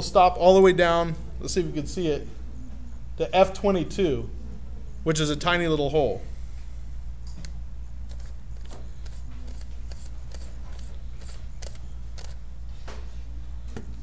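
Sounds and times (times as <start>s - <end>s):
steady low hum: 0.0s - 14.0s
camera lens clicks: 7.3s - 12.4s.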